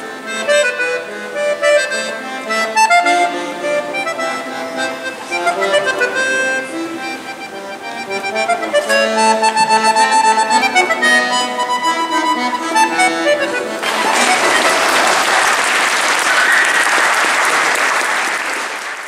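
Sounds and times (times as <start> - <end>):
accordion playing: 0.0 - 18.6
audience applause: 13.8 - 19.0.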